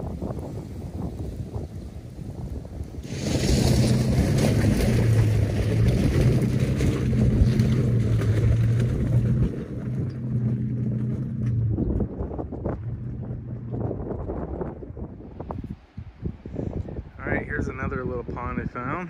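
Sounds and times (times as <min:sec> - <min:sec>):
wind on microphone: 0:00.0 - 0:19.0
truck engine under load: 0:02.8 - 0:15.4.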